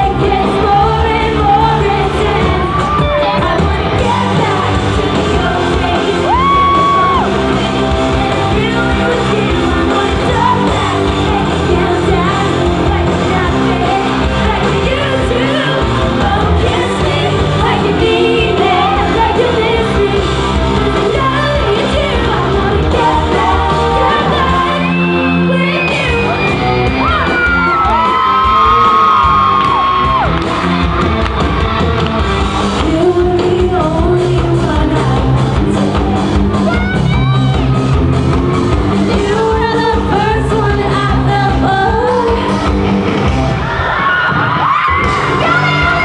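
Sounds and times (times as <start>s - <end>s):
woman singing lead vocal: 0.0s - 26.5s, 32.7s - 35.8s, 38.9s - 42.8s, 44.7s - 46.0s
fans shouting and whooping: 0.0s - 34.0s, 35.6s - 46.0s
live pop-rock band playing: 0.0s - 46.0s.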